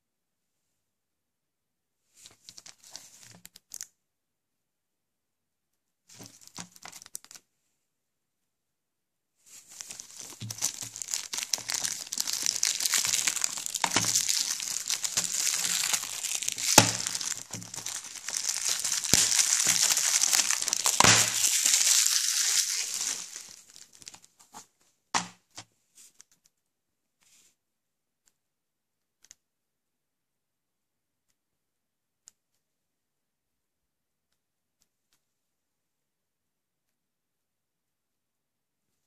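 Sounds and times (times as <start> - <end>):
plastic wrap crinkling and tearing: 9.6 - 24.6
plastic wrap snapping: 9.8 - 24.3.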